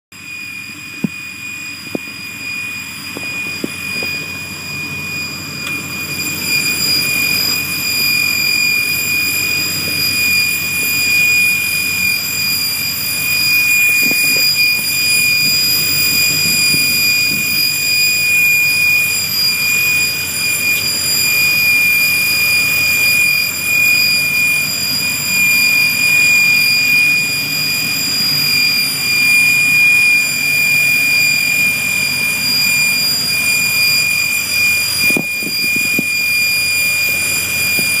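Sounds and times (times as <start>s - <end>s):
high-pitched whine: 0.1s - 38.0s
truck engine running: 0.3s - 26.5s.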